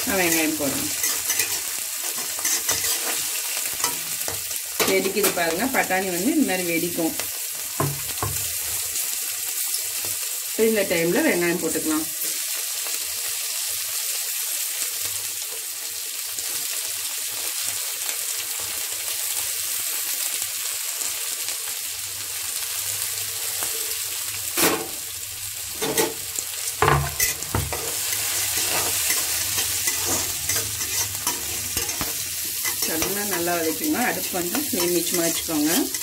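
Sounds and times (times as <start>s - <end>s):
vegetables sizzling in hot oil: 0.0s - 36.0s
spatula knocking and scraping pan: 0.9s - 3.2s, 7.8s - 8.5s, 25.7s - 26.2s, 26.8s - 33.9s.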